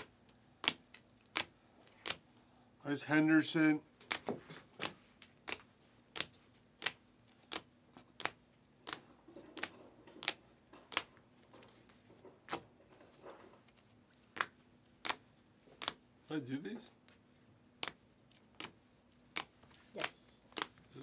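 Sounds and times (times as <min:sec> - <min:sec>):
trading cards flipping clicks: 0:04.0 - 0:11.1.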